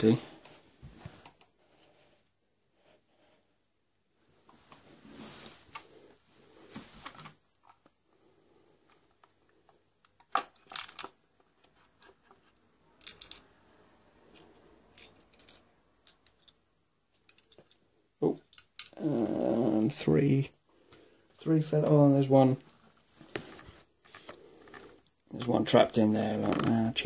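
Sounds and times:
rifle magazine clicking and rattling: 13.0 - 13.4.

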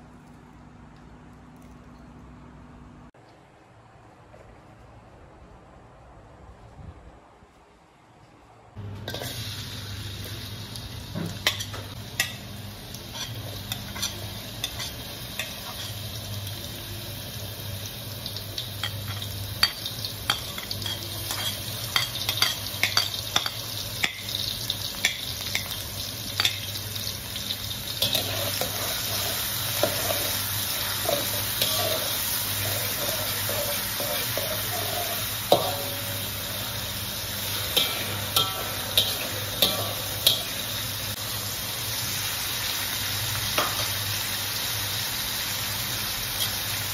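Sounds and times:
vegetables sizzling in hot oil: 8.8 - 46.9
spatula clicking and scraping pan: 13.1 - 16.0, 18.8 - 24.4, 28.0 - 36.0.

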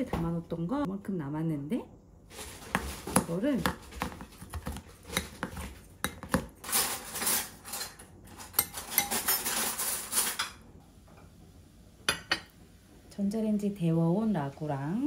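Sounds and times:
cutlery and dishes clinking: 5.1 - 10.6.

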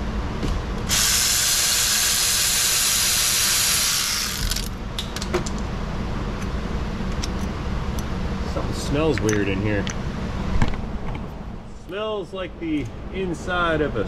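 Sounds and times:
pneumatic air ratchet running: 0.9 - 4.7.

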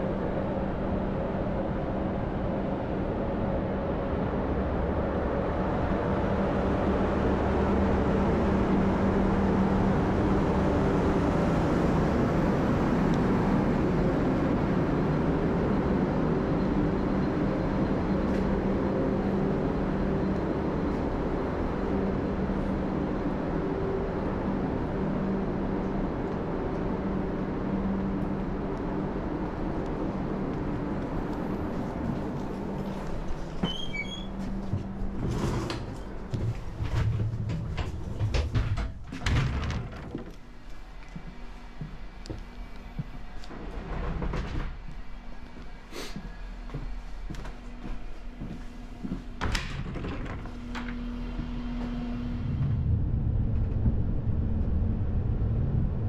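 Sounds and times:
train electrical hum and blower: 0.0 - 56.0
low rumble: 49.4 - 56.0.

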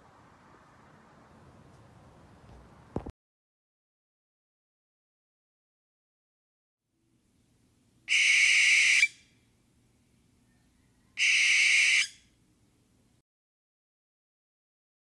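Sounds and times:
barn owl screeches: 8.1 - 9.2, 11.2 - 12.2.

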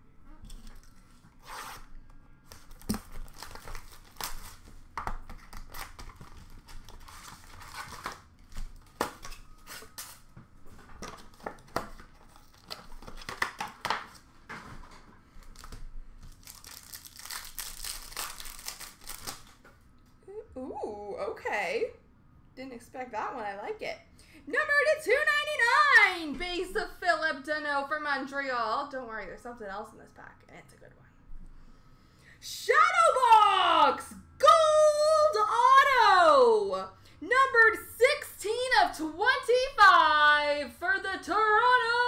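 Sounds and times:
wrappers tearing and crinkling: 2.4 - 10.3, 11.2 - 14.3, 15.4 - 19.6
cards and boxes rustling: 2.4 - 19.6.

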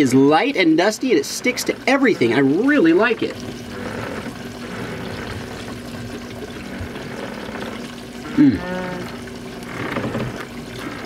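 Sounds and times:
water sloshing against hull: 0.0 - 11.0.

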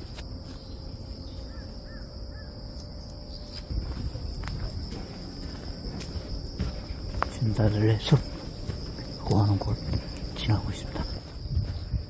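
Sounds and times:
insects chirring: 0.0 - 12.0
footsteps on dirt path: 3.4 - 12.0.

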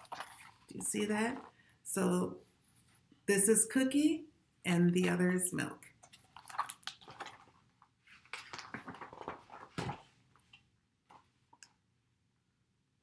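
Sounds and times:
paper pages rustling: 0.0 - 1.6, 6.1 - 11.3.

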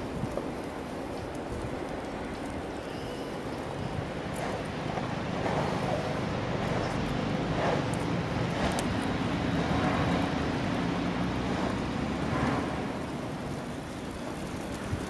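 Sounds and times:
traffic rumble: 0.0 - 15.0
vehicles passing: 3.2 - 15.0.

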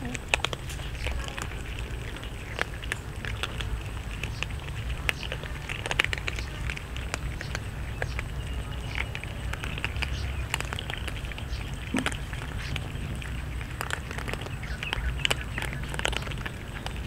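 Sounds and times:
cats crunching dry kibble: 0.0 - 17.0
low steady rumble: 0.0 - 17.0.

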